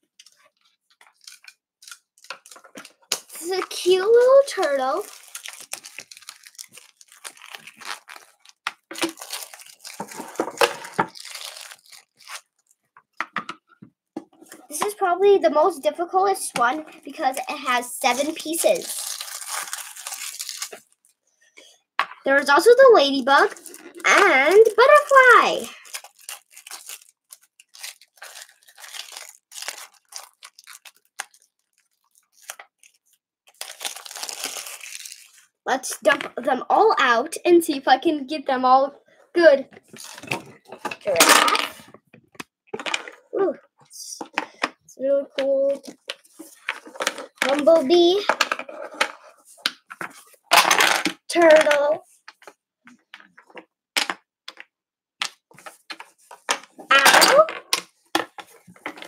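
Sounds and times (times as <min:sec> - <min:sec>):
plastic wrapping crinkling and tearing: 0:00.2 - 0:12.9, 0:18.0 - 0:21.2, 0:23.4 - 0:35.6, 0:39.8 - 0:41.8.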